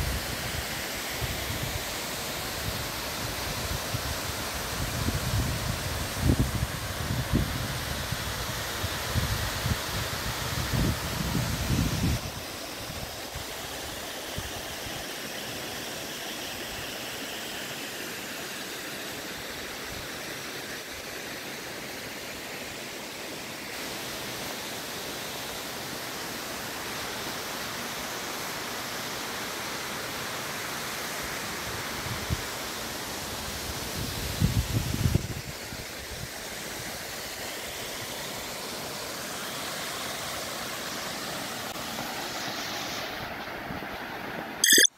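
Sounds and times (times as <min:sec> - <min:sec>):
falling water rushing: 0:36.0 - 0:44.6.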